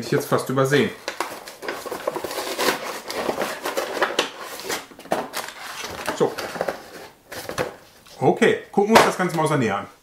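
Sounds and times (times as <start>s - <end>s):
cardboard box rustling and scraping: 1.2s - 7.8s.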